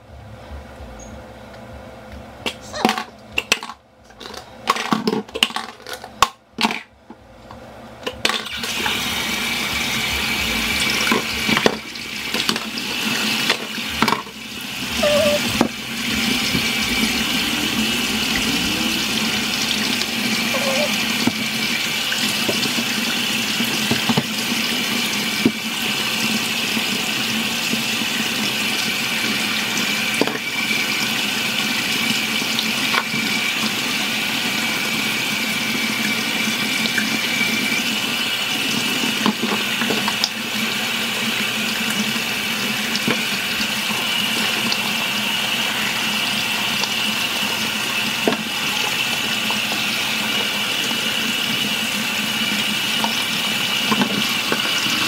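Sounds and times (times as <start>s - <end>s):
tap water splashing in sink: 21.1s - 26.9s, 46.7s - 55.0s.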